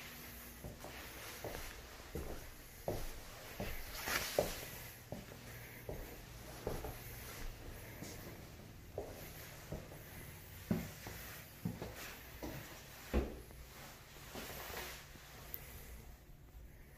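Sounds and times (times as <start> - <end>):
faint steady hiss: 0.0 - 16.9
soft footstep thuds: 0.6 - 8.4, 9.0 - 14.6.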